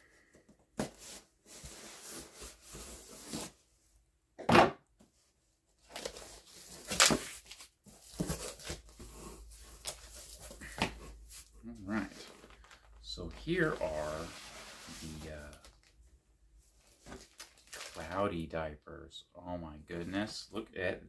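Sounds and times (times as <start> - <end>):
cardboard tearing: 5.9 - 10.5
packaging rustling: 12.0 - 15.9, 16.8 - 18.1.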